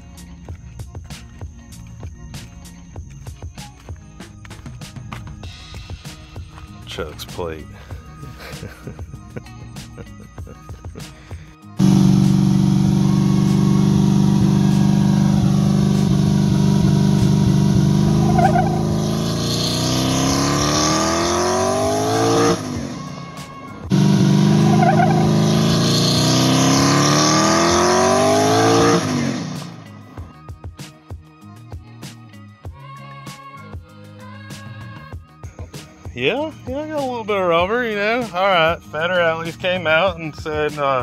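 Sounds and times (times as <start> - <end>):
tires spinning: 11.8 - 29.9
drag car engine revving: 11.8 - 30.0.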